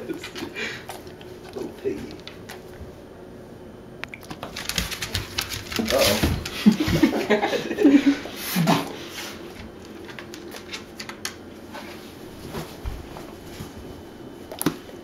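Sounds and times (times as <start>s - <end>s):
dog claws clicking on tile: 4.3s - 6.8s.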